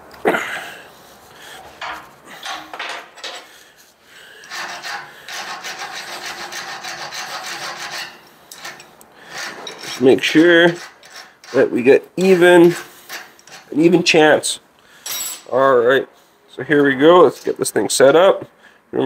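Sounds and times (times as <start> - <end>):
deburring tool scraping metal: 1.8 - 3.6, 4.4 - 14.1.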